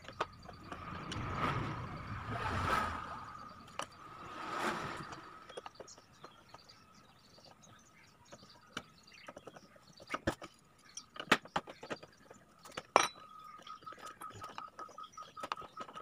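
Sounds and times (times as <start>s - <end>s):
clicks and knocks of plastic and metal: 7.4s - 16.0s.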